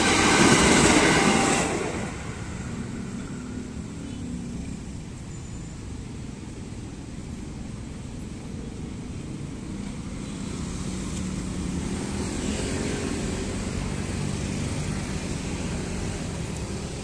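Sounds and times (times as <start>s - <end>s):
scooter and motorcycle engines: 7.1s - 17.0s.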